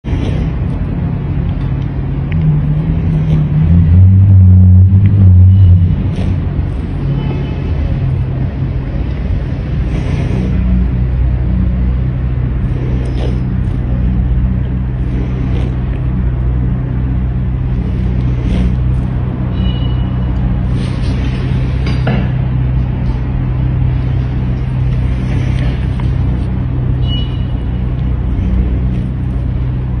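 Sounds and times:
low mechanical rumble and hum: 0.0 - 30.0
music with deep bass line: 0.8 - 30.0
high metallic ring: 19.5 - 20.4, 27.0 - 27.8.

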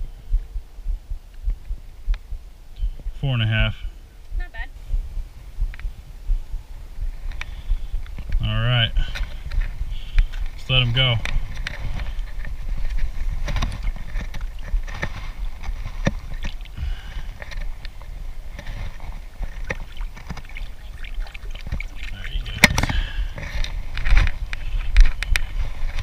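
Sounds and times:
water sloshing and splashing: 13.3 - 24.5.

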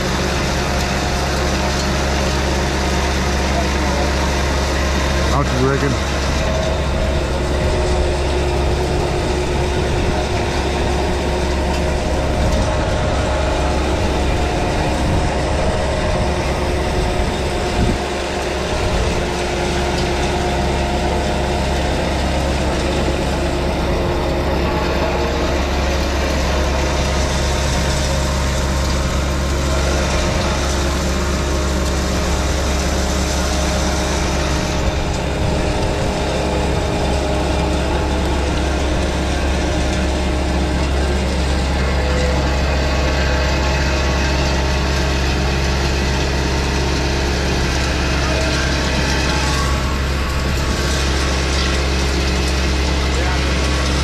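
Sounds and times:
diesel engine running: 0.0 - 54.0
rake rotor churning gravel: 0.0 - 54.0.

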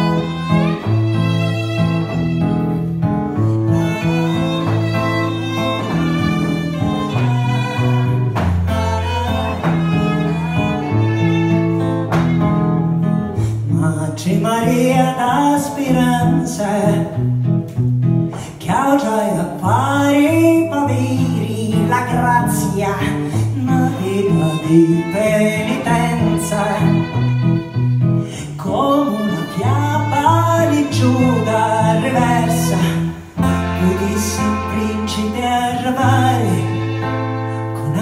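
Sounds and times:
violin held notes: 0.0 - 12.0
cello held notes: 0.0 - 12.1
acoustic guitar strumming: 0.0 - 38.0.

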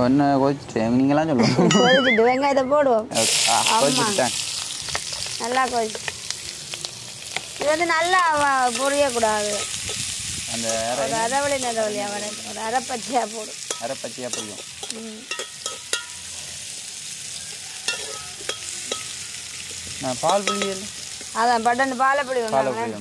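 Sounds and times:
onions sizzling in hot oil: 3.1 - 23.0
metal spoon scraping a pot: 17.9 - 21.3.

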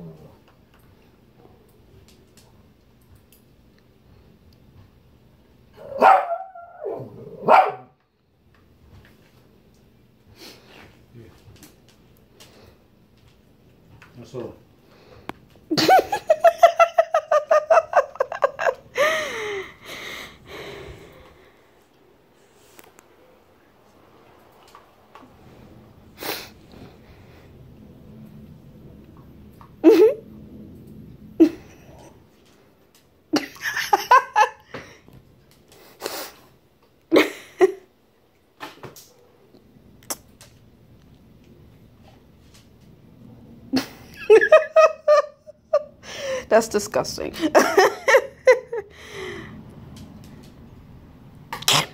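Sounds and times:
person laughing hard: 15.7 - 19.8
person breathing: 18.9 - 21.9, 46.0 - 46.5, 48.9 - 49.7.

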